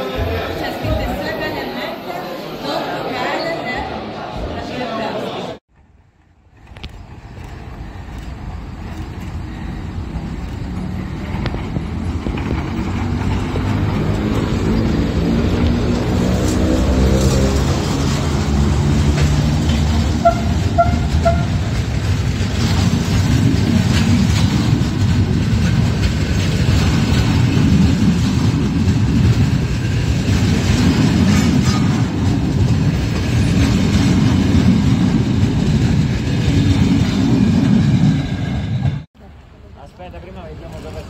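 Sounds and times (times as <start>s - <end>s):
train wheels rumbling on rails: 5.8s - 39.1s.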